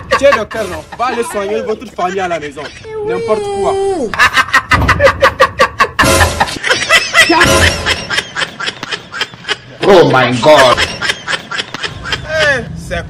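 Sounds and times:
rapid laughter: 0:00.0 - 0:12.7.

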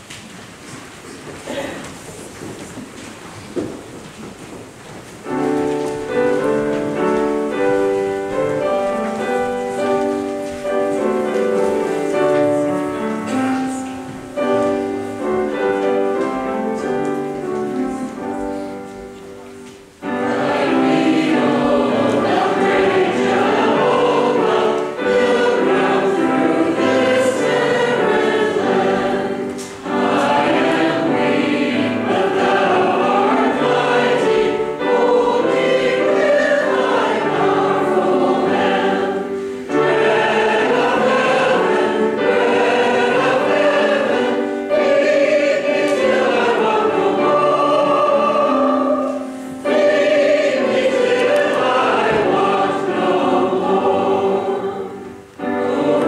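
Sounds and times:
group of voices singing hymn: 0:20.0 - 0:56.0.

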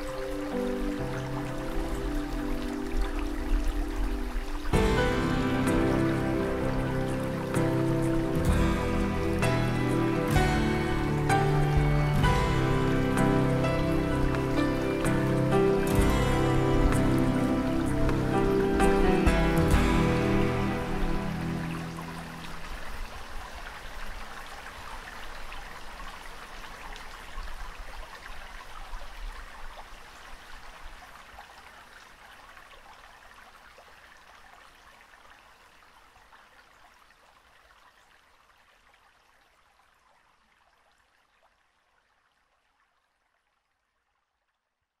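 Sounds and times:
water hiss with fine crackle: 0:00.0 - 0:44.7.

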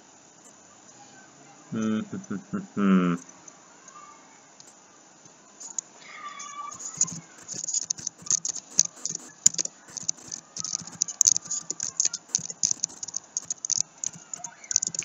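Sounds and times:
keyboard typing: 0:06.7 - 0:15.0.

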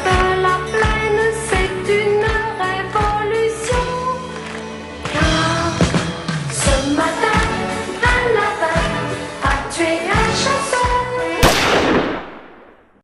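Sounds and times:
music with steady drum beat: 0:05.1 - 0:08.2.

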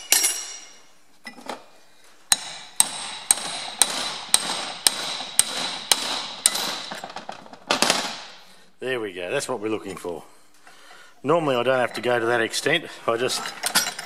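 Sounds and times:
hammer striking metal chisel: 0:02.3 - 0:07.2.

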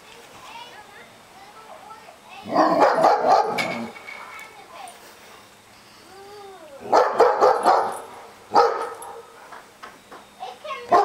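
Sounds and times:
dogs barking: 0:02.4 - 0:03.9, 0:06.8 - 0:09.4
dog whining: 0:06.1 - 0:07.7.

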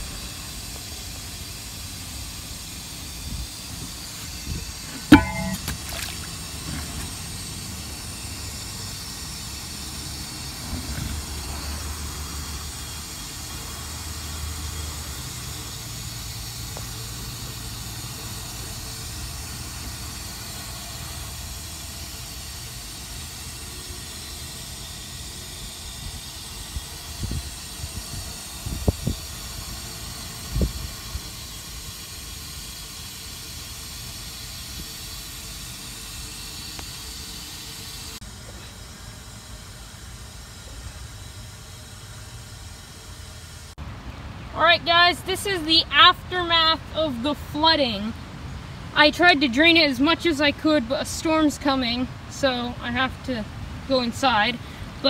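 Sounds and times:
rushing water hiss: 0:00.0 - 0:38.8.

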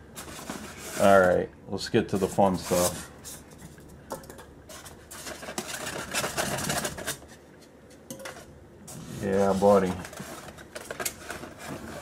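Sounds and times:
styrofoam squeaking and scraping: 0:02.5 - 0:03.0.

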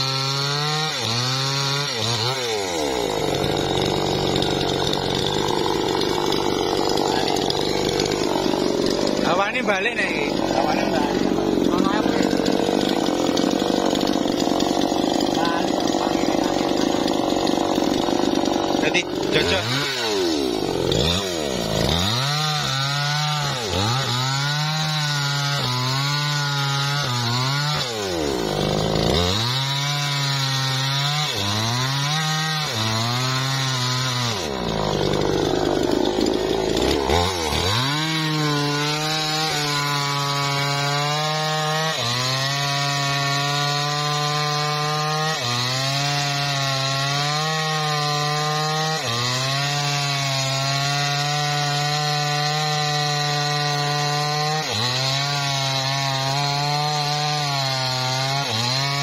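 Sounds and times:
chainsaw cutting wood: 0:00.0 - 0:59.0.

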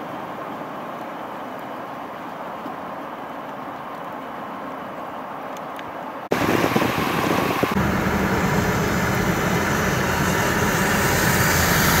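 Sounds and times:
vehicle engine hum: 0:06.3 - 0:12.0.

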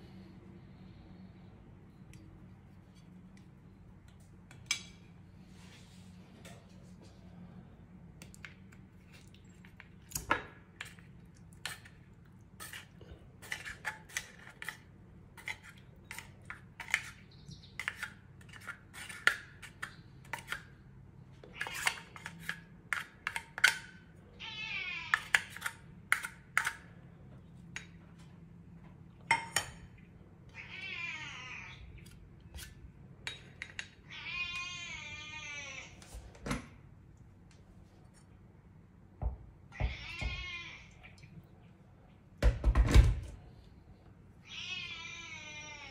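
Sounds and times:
spoon scraping metal can: 0:12.6 - 0:14.8, 0:17.8 - 0:20.6
cat meowing: 0:30.6 - 0:31.8, 0:34.0 - 0:36.0, 0:39.7 - 0:41.1, 0:44.4 - 0:45.9.

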